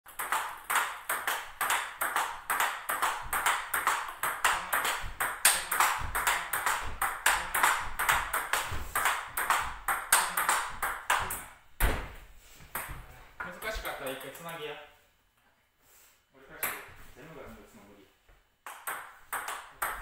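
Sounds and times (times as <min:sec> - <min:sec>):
table tennis ball clicking: 0:18.6 - 0:20.0.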